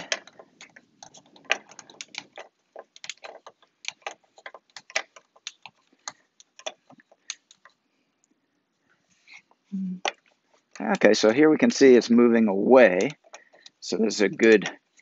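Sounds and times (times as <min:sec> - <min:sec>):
plastic clicking of turning screw: 0:00.0 - 0:07.8.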